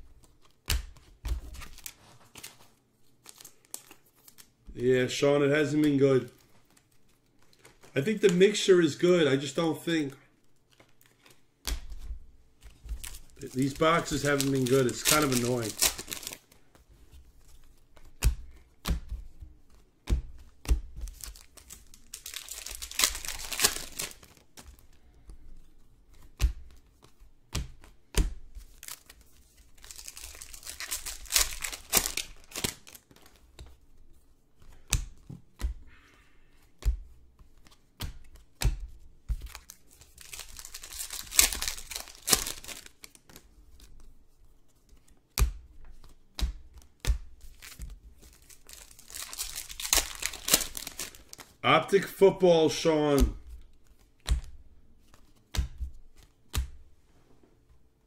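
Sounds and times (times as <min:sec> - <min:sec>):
wrappers torn and crinkled: 0:13.0 - 0:16.6, 0:21.1 - 0:24.5, 0:28.7 - 0:33.4, 0:39.4 - 0:43.4, 0:47.5 - 0:52.2.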